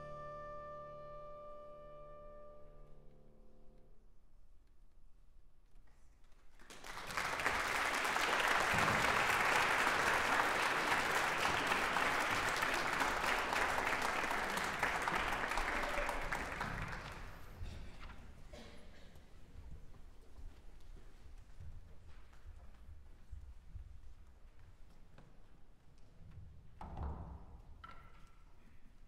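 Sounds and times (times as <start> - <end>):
audience applause: 6.5 - 17.6.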